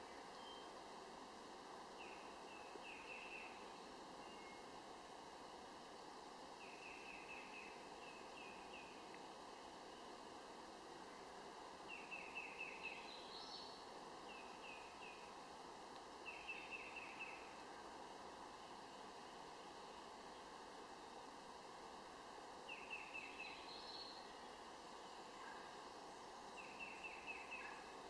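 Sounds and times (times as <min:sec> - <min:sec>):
outdoor background hiss: 0:00.0 - 0:28.0
bird chirps: 0:26.6 - 0:27.8.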